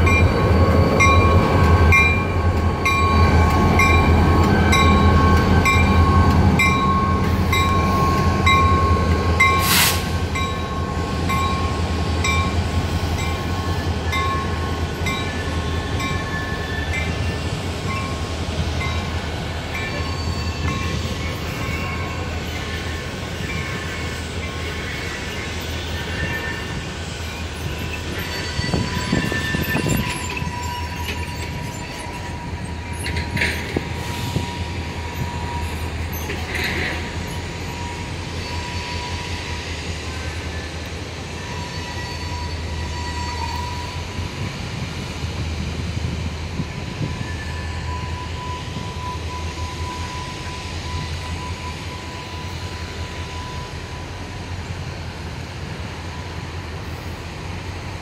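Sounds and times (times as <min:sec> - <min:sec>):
freight train rumbling: 0:00.0 - 0:58.0
train clanks: 0:00.0 - 0:58.0
wheel squeal: 0:15.2 - 0:17.5, 0:19.8 - 0:40.8, 0:41.4 - 0:44.2, 0:47.0 - 0:54.1.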